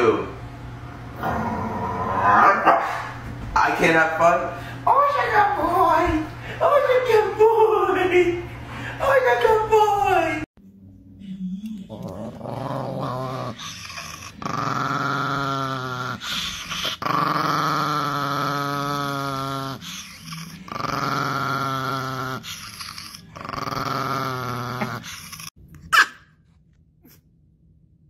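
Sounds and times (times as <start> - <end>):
small dog growling: 1.2 - 2.6, 11.6 - 25.5.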